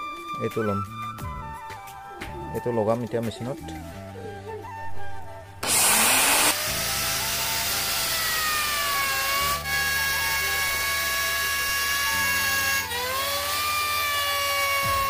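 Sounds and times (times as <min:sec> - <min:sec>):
electric wood router whining: 0:05.6 - 0:15.0.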